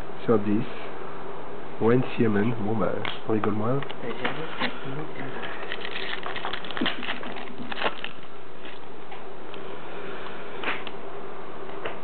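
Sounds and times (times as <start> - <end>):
steady background hiss: 0.0 - 12.0
cards and foil pack rustling: 4.2 - 8.9.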